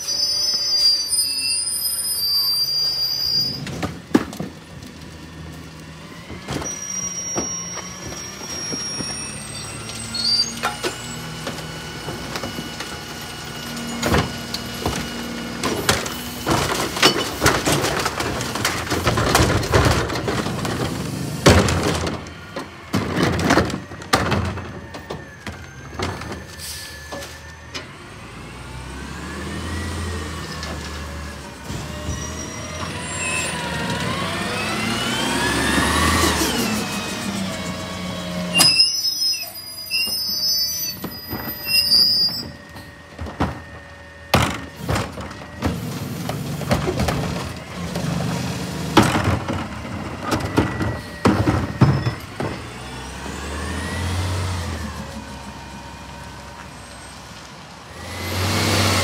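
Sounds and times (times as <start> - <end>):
carts and bags banging hopper: 3.6 - 28.0, 40.9 - 56.7
engine revving with whine: 28.1 - 38.8, 52.5 - 56.1, 57.9 - 59.0
garbage truck idling: 39.6 - 58.8.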